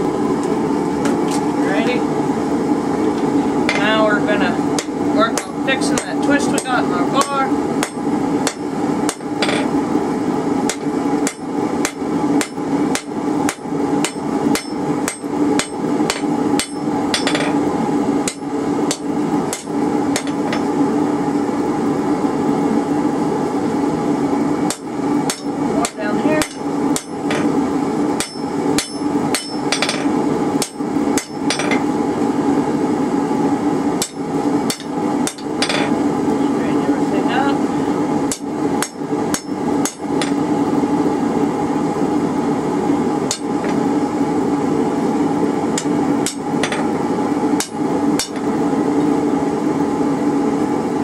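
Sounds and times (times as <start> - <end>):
hammer striking metal on anvil: 10.7 - 17.6, 24.7 - 27.5, 28.2 - 31.8, 34.0 - 35.9, 38.3 - 40.4, 43.3 - 43.8, 47.6 - 48.5.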